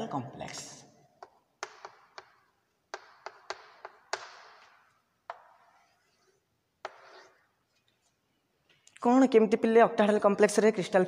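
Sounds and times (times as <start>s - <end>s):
chalk tapping on blackboard: 1.2s - 7.5s.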